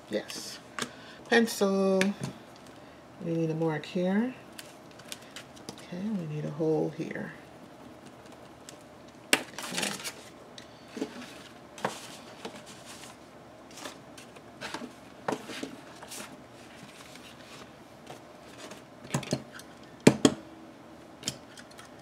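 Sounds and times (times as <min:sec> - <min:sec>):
paper rustling: 0:11.0 - 0:18.9.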